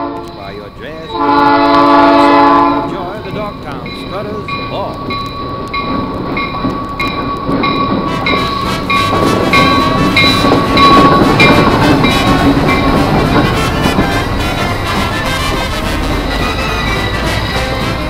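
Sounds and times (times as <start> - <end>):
train rumbling past: 0.0 - 18.0
bell clanging: 2.2 - 14.0.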